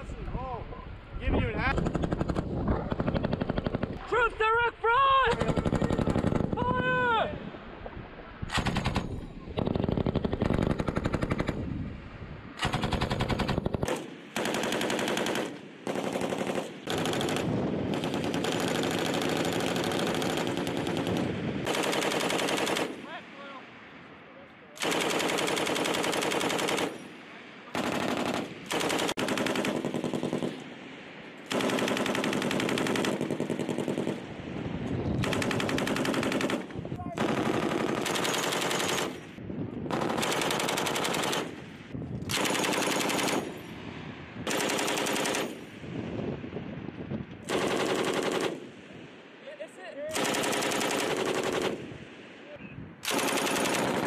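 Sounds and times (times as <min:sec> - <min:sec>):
machine gun firing bursts: 0:01.7 - 0:04.0, 0:05.3 - 0:06.6, 0:08.6 - 0:11.6, 0:12.6 - 0:23.0, 0:24.8 - 0:27.0, 0:27.7 - 0:30.6, 0:31.5 - 0:34.2, 0:35.2 - 0:41.6, 0:42.3 - 0:43.6, 0:44.4 - 0:45.6, 0:47.5 - 0:48.9, 0:50.1 - 0:51.9, 0:53.0 - 0:54.0.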